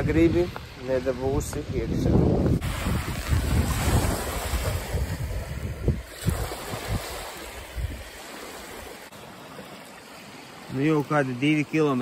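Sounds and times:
wind buffeting microphone: 0.0s - 8.2s
small waves washing onto sand: 2.5s - 12.0s.

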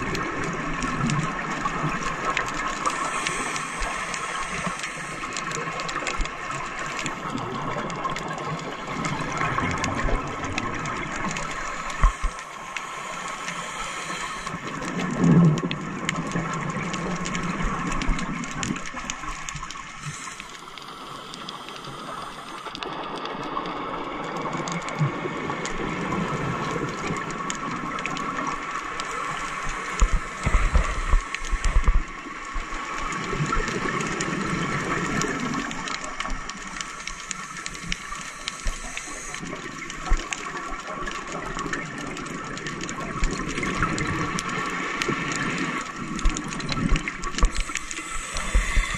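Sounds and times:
faint steady hum: 11.2s - 15.4s, 47.5s - 48.9s.

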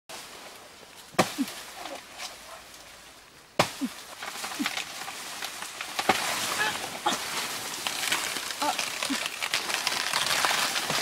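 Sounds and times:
leaves rustling: 0.1s - 11.0s
chopping strikes on plant trunk: 1.2s - 1.5s, 3.6s - 3.9s.

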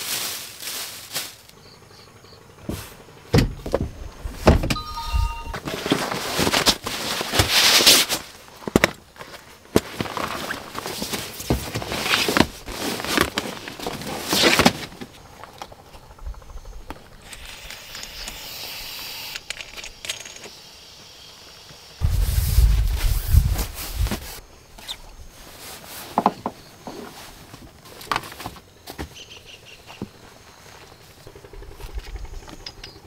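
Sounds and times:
rustling: 0.0s - 1.6s, 5.6s - 15.5s, 22.0s - 28.7s.

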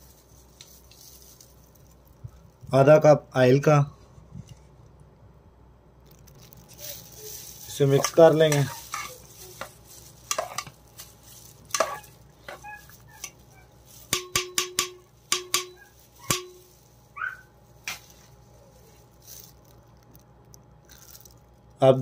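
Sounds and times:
metal spoon clinking in pot: 11.7s - 12.6s, 14.1s - 16.6s.

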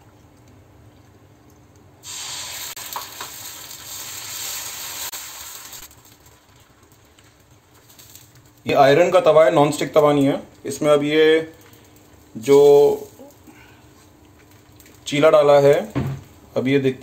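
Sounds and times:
batter sizzling on griddle: 2.0s - 9.3s.

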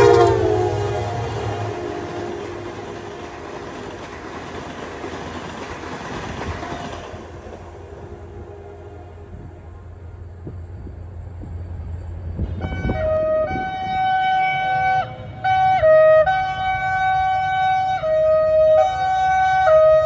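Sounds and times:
two-tone locomotive air horn: 0.0s - 3.7s, 6.5s - 10.2s, 12.4s - 20.0s
train rumbling on rails: 0.0s - 20.0s.

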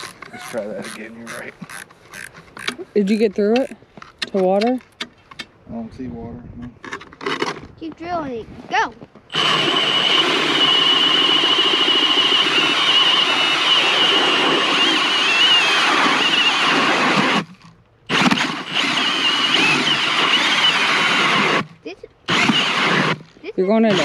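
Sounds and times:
cordless drill motor whining: 0.0s - 3.2s, 9.3s - 24.0s
auger blades grinding ice: 0.0s - 3.8s.

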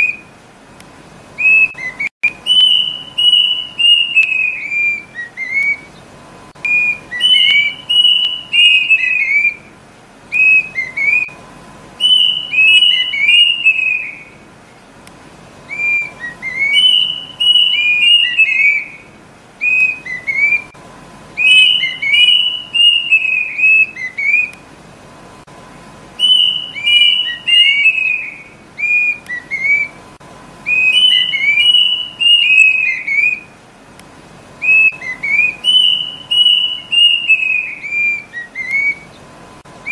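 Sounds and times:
cuckoo whistled calls: 0.0s - 0.4s, 1.4s - 11.4s, 12.0s - 14.9s, 15.6s - 20.8s, 21.4s - 24.6s, 26.2s - 33.6s, 34.6s - 39.9s.

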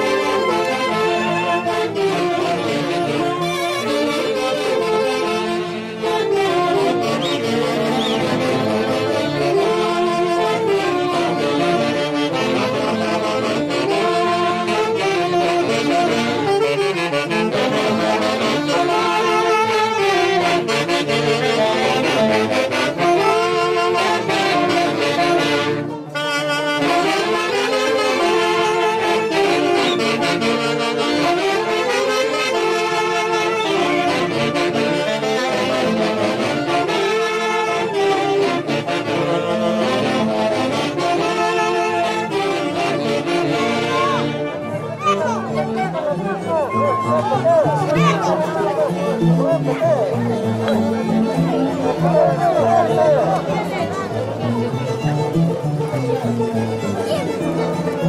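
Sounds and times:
saxophones and brass dance music: 0.0s - 58.0s.

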